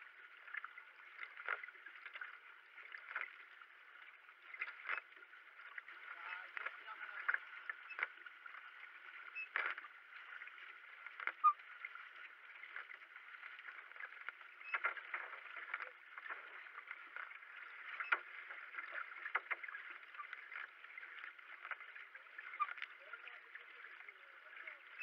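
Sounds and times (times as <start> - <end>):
paddle splashes and knocks: 0.0 - 25.0.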